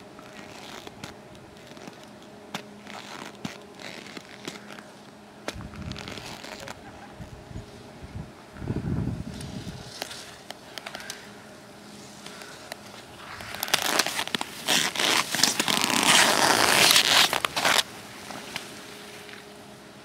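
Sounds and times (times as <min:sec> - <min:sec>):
skis scraping over hard snow: 0:13.2 - 0:19.4.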